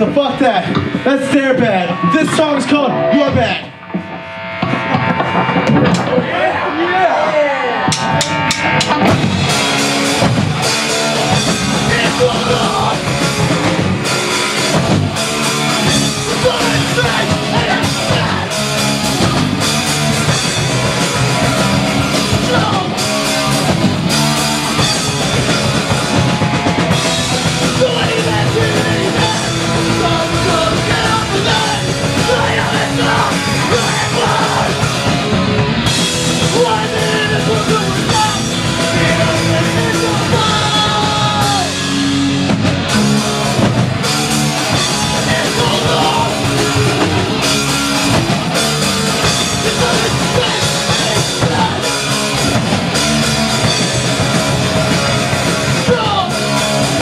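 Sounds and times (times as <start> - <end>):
live rock band playing: 0.0 - 57.0
vocalist shouting into microphone: 39.1 - 41.8.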